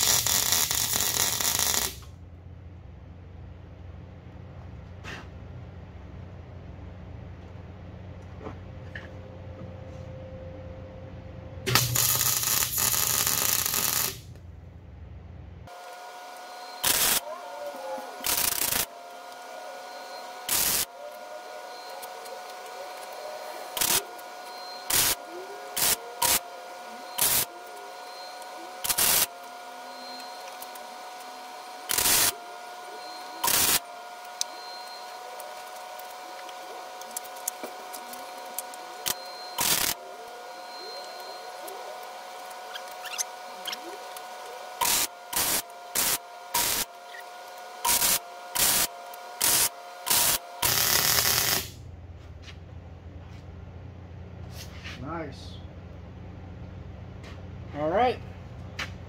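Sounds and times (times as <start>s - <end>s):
welder arc tack-welding: 0.0s - 2.1s, 11.6s - 14.4s, 15.7s - 51.8s.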